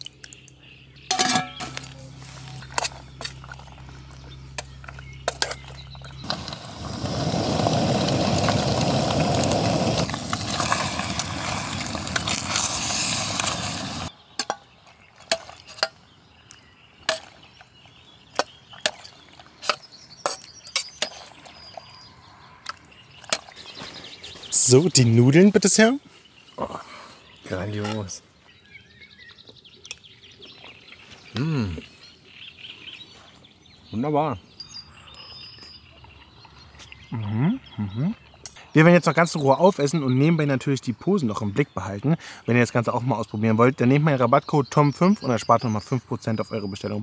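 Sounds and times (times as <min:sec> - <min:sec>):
loud steady hiss: 0:06.2 - 0:14.1.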